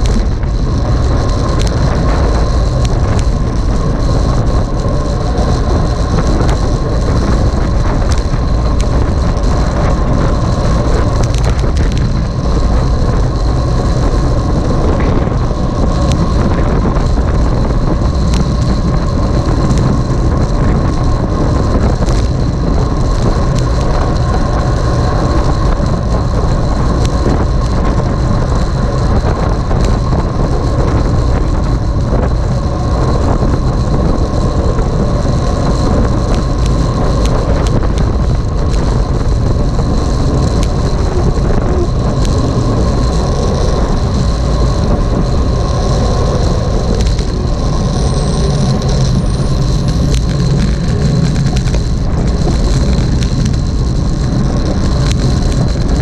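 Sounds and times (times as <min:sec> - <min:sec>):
wind and road noise: 0:00.0 - 0:56.0
faint high whines: 0:40.6 - 0:53.2.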